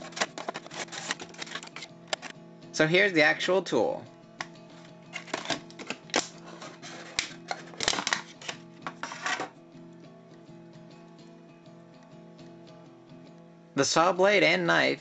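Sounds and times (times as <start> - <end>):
metal tool parts clicking: 0.0 - 2.3
plastic packaging crackling: 0.0 - 2.3
quiet background music: 0.0 - 15.0.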